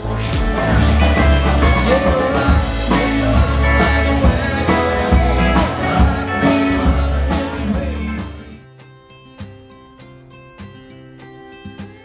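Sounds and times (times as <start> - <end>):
drum kit beat: 0.0 - 8.4
bass guitar: 0.0 - 8.6
electric guitar: 0.0 - 12.0.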